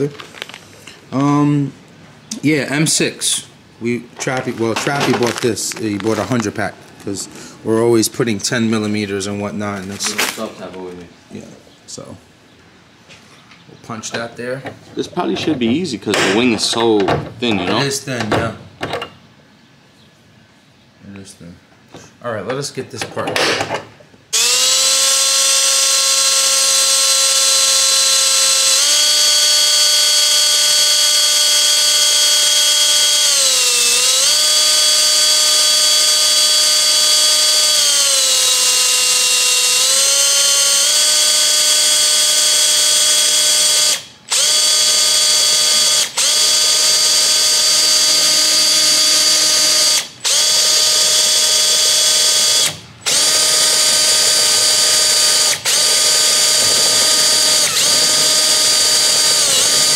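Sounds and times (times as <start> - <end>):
electric drill whining: 24.3 - 59.9.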